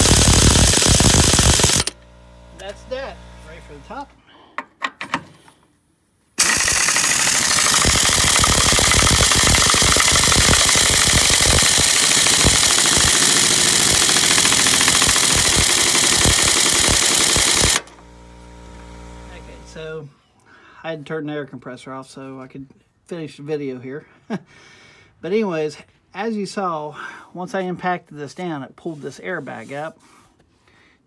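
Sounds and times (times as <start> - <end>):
pneumatic impact wrench hammering: 0.0 - 2.8, 6.4 - 18.1.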